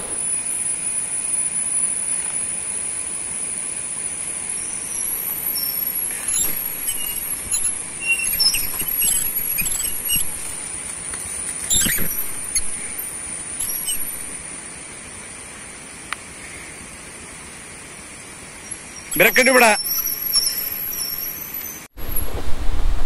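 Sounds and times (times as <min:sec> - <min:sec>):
motorcycle riding on dirt track: 0:00.0 - 0:23.0
short high chirps: 0:04.6 - 0:10.7, 0:11.7 - 0:14.4, 0:18.6 - 0:21.9.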